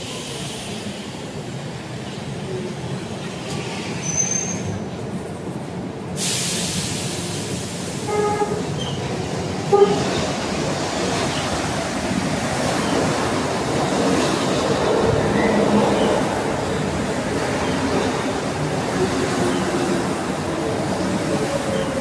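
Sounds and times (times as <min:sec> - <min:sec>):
metro train running past: 0:00.0 - 0:22.0
train horn toots: 0:08.0 - 0:08.7, 0:09.7 - 0:10.2.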